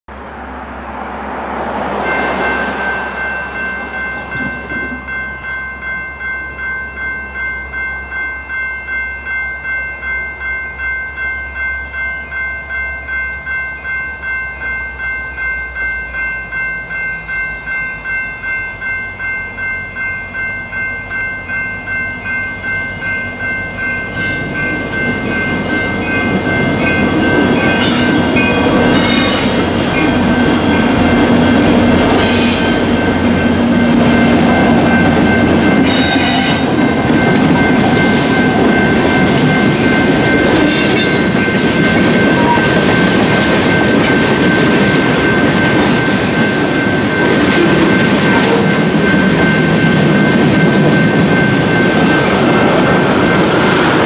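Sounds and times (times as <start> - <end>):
diesel locomotive engine and wheels: 0.1 - 54.0
railroad crossing warning bell: 0.1 - 54.0.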